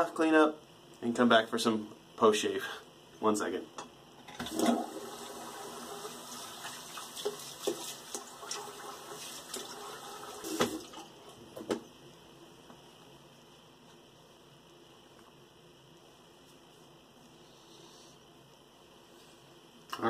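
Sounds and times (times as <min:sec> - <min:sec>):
tap running into a sink: 0:06.6 - 0:08.7, 0:10.4 - 0:10.9.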